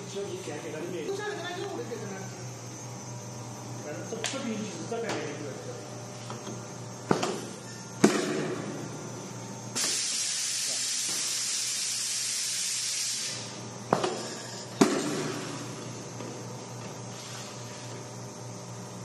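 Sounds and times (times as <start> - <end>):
compressed gas hissing: 9.7 - 13.6
pneumatic clunks: 9.8 - 10.4, 13.0 - 18.0.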